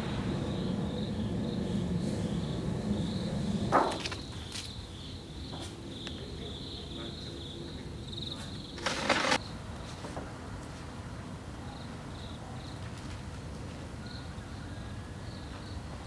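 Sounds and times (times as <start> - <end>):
insects chirring: 0.0 - 9.6
rustling: 8.8 - 9.4.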